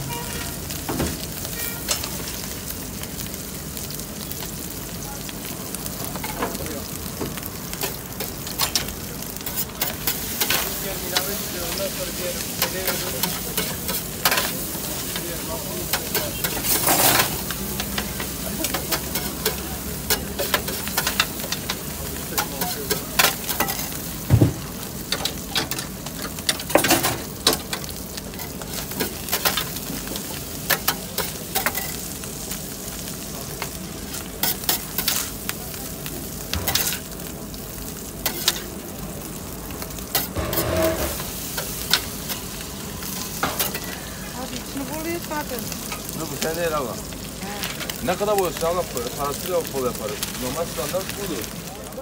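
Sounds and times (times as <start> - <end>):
meat sizzling on a griddle: 0.0 - 52.0
metal spatula clacking and scraping: 12.6 - 14.6.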